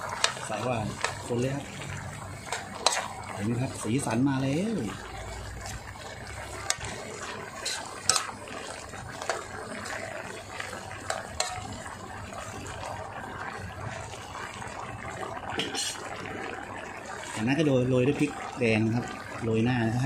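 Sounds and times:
curry bubbling in a pot: 0.0 - 20.0
ladle clinking against metal pot: 7.6 - 8.3.

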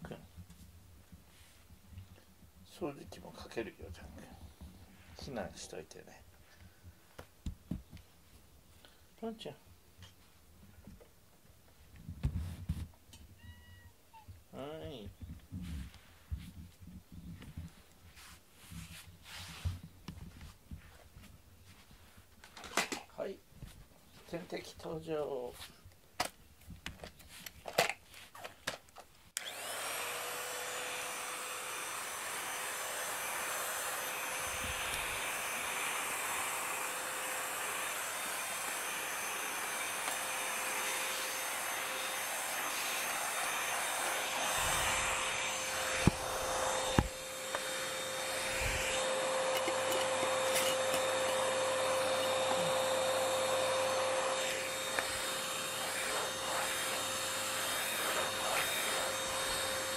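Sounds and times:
vacuum cleaner clicks: 29.4 - 29.8, 39.9 - 40.3, 44.2 - 52.9
vacuum cleaner motor whining: 29.4 - 59.9.

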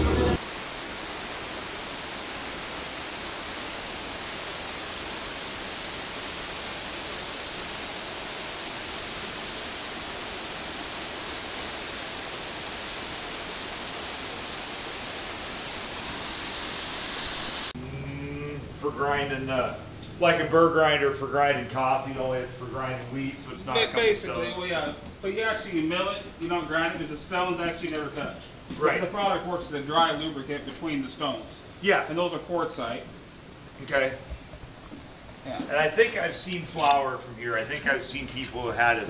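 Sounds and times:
water rushing over waterfall: 0.4 - 17.8.

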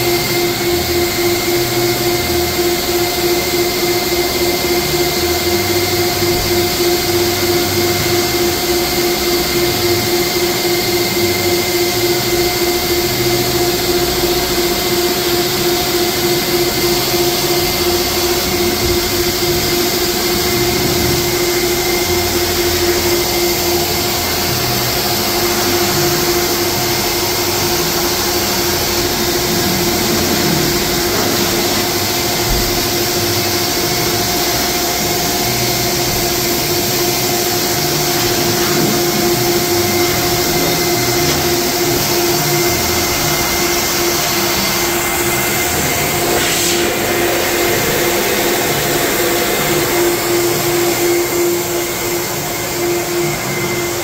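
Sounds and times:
air dryer motor hum: 0.0 - 54.0
loud rush of air: 13.1 - 54.0.

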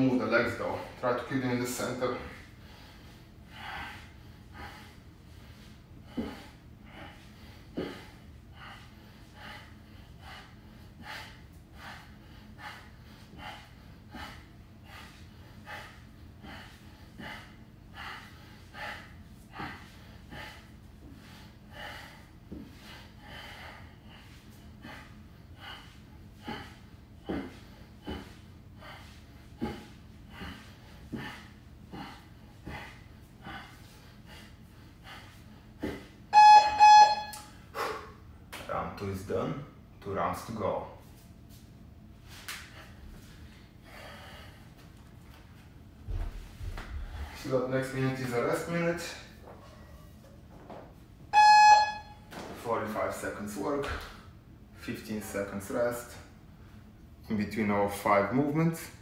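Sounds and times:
man breathing hard: 1.7 - 36.9, 37.6 - 38.3, 42.6 - 45.1.

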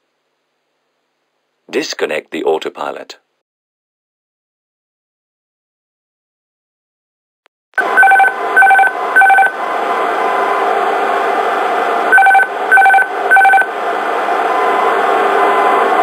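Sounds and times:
short warning beeps: 12.1 - 13.7.

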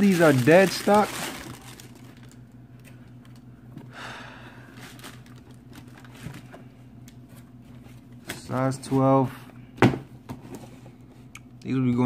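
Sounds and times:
tissue paper rustling: 0.0 - 2.4, 4.8 - 6.4
steady low hum: 0.0 - 12.0.

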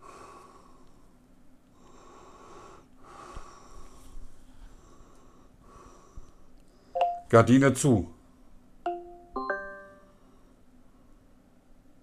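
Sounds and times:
man breathing heavily through nose: 0.0 - 7.0.

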